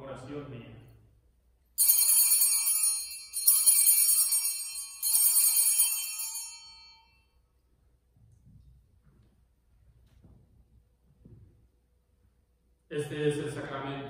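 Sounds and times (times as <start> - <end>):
altar bells jingling: 1.8 - 7.3.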